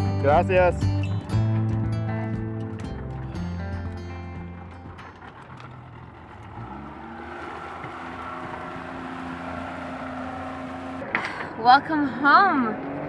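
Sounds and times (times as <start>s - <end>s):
outboard motor throttling up: 0.2s - 11.5s.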